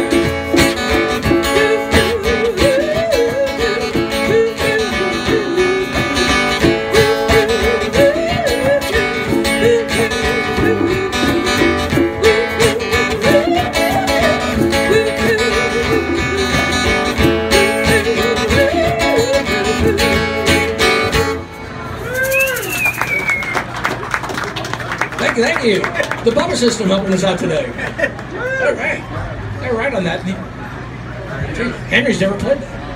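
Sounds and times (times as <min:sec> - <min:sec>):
hand drum: 0:00.0 - 0:21.4
strummed acoustic guitar: 0:00.0 - 0:22.7.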